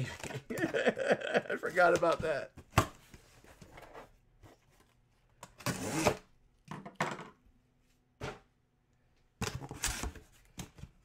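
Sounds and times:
box cutter slicing cardboard: 5.6s - 6.3s.

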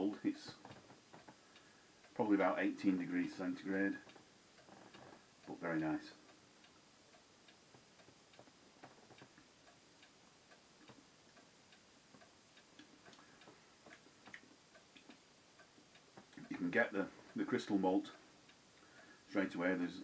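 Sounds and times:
faint ticks: 0.4s - 2.2s, 2.8s - 20.0s.

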